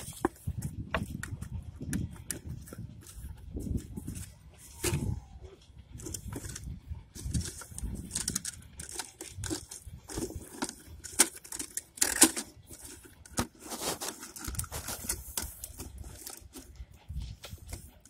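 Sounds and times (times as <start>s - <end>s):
plastic bottle crinkling: 6.0s - 16.8s.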